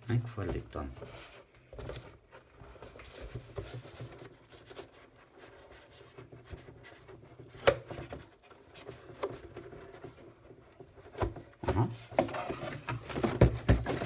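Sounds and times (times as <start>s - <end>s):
cardboard packaging rubbing and scraping: 0.4s - 7.5s, 8.2s - 14.0s.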